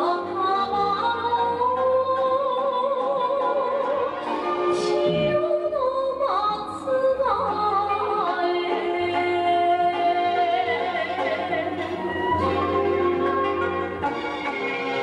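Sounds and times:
person singing long wavering notes: 0:00.0 - 0:14.0
steady low tone: 0:04.6 - 0:06.0.

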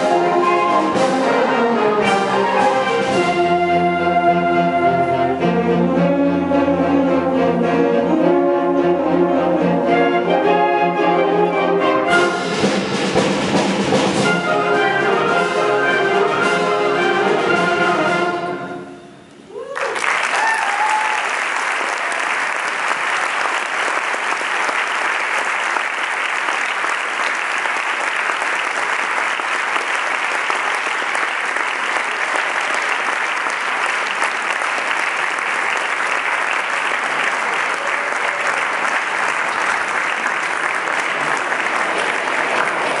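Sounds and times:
audience applauding: 0:19.7 - 0:43.0.

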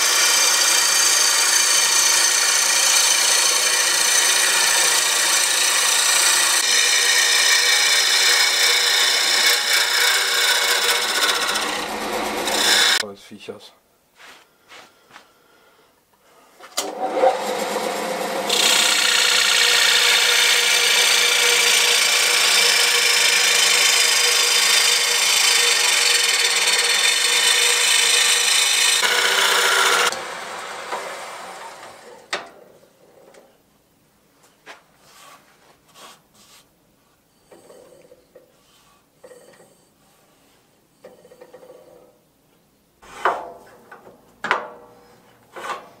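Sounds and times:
gouge shaving wood on lathe: 0:00.0 - 0:13.0, 0:16.9 - 0:32.1
wood lathe running: 0:00.0 - 0:13.0, 0:16.8 - 0:32.2.

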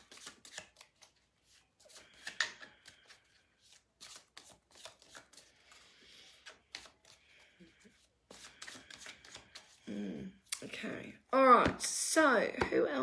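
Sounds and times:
cards being shuffled: 0:00.0 - 0:09.9.

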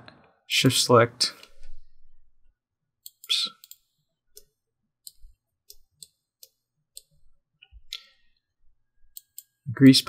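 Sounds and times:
computer mouse clicking: 0:03.0 - 0:07.2, 0:09.1 - 0:09.6.

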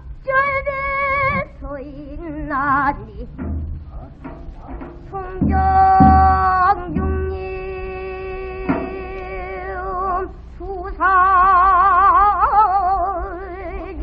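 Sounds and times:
barrel drum beats: 0:00.0 - 0:01.6, 0:02.4 - 0:10.8
woman singing with vibrato: 0:00.0 - 0:03.8, 0:05.0 - 0:14.0.

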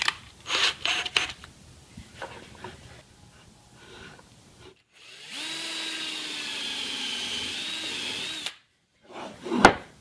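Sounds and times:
power drill whining: 0:04.9 - 0:08.6.

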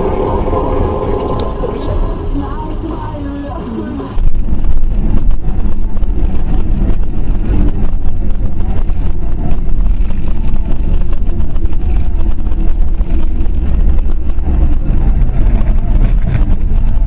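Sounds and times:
car engine rumble: 0:00.0 - 0:17.0
road noise: 0:00.0 - 0:17.0.

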